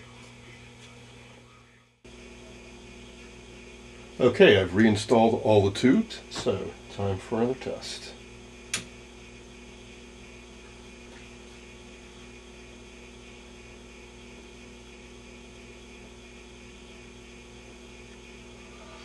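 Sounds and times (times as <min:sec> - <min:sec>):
steady mains hum: 0:00.0 - 0:19.0
television switch click: 0:08.7 - 0:08.9.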